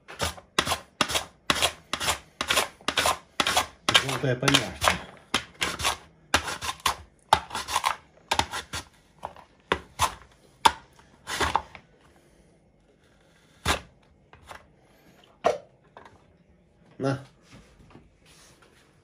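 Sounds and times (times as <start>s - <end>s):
knife chopping on cutting board: 0.1s - 8.9s.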